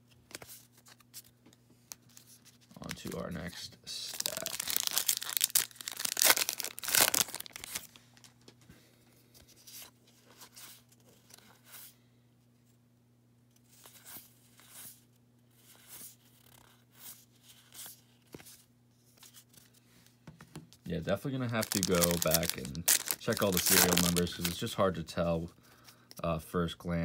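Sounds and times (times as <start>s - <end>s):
card pack wrapper tearing: 4.0s - 8.0s, 21.5s - 24.7s.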